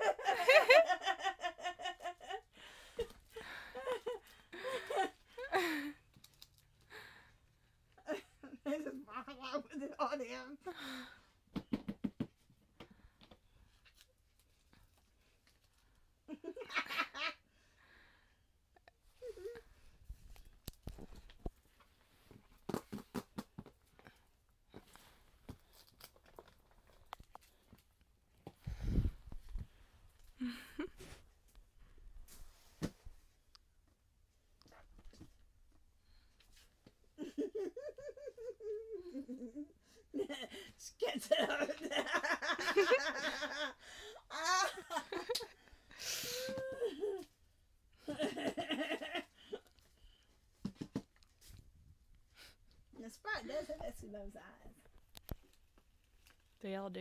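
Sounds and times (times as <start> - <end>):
woman laughing: 0.0 - 6.0, 37.2 - 45.5, 46.4 - 47.3.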